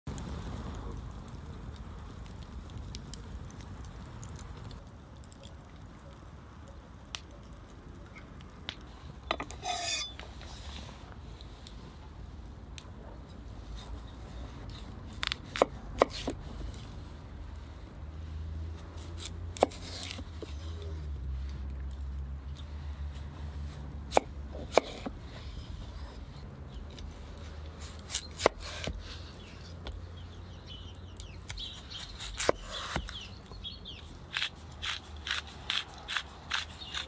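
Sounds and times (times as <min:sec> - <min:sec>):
rustle: 0:00.1 - 0:37.0
wood fire crackling: 0:00.1 - 0:37.0
knife slicing onto cutting board: 0:09.6 - 0:10.2.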